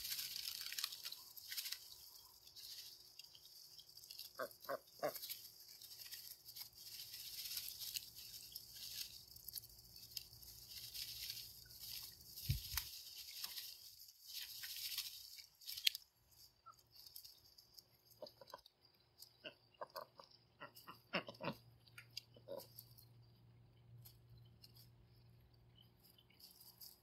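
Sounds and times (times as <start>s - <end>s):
ducks rustling plastic grass: 0.0s - 18.7s, 19.4s - 21.6s.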